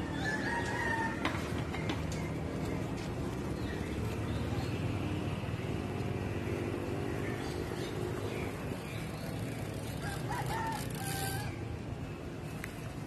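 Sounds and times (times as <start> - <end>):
rooster crowing: 0.0 - 1.5, 10.0 - 11.6.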